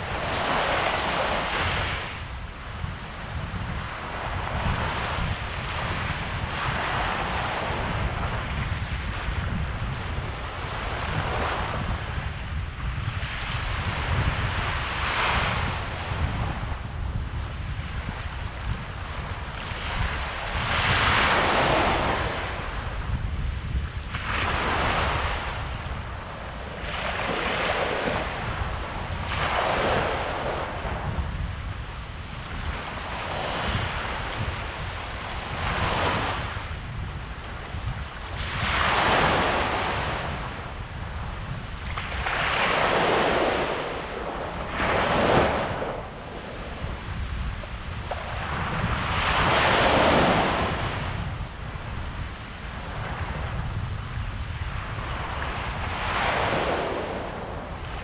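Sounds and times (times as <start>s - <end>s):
waves breaking on beach: 0.0s - 58.0s
low surf rumble: 39.2s - 58.0s.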